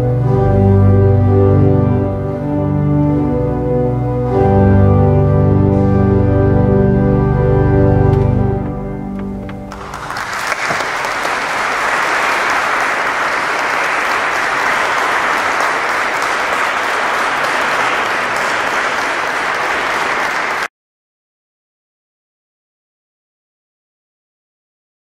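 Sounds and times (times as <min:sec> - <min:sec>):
organ chord: 0:00.0 - 0:13.4
audience applause: 0:09.6 - 0:20.7.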